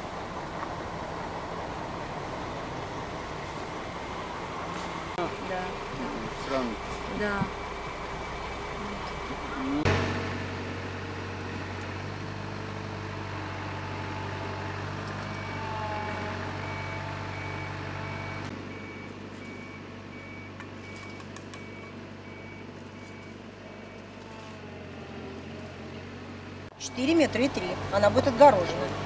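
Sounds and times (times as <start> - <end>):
diesel engines running: 0.0 - 29.0
reversing alarm beeping: 15.3 - 24.8.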